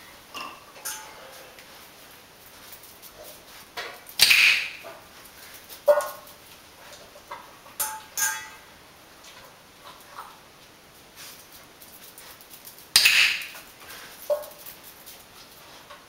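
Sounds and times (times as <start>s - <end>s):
metallic clinks of bowl: 0.3s - 1.4s, 7.8s - 8.7s.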